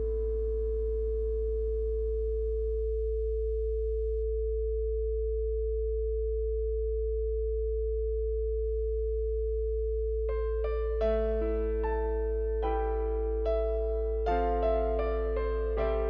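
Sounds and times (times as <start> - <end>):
low sine tone: 0.0 - 16.0
piano notes: 10.3 - 16.0
soft background music: 10.4 - 16.0.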